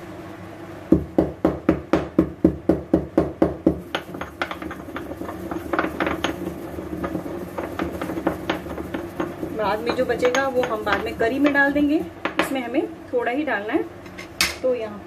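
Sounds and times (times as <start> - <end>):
pestle pounding spices in mortar: 0.9 - 12.7.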